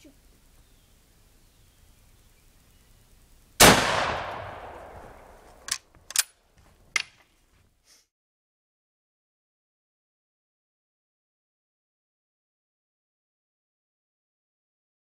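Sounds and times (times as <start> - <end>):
rifle shot echoing: 3.6 - 5.7
rifle bolt clicks: 5.6 - 6.4.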